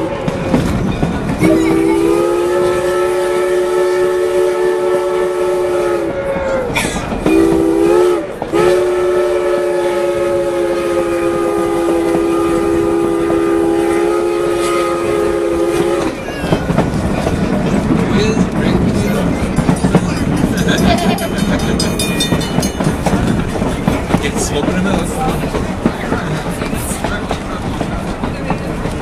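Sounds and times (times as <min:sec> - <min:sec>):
train wheels clacking on rails: 0:00.0 - 0:29.0
steam locomotive chime whistle: 0:01.4 - 0:16.2.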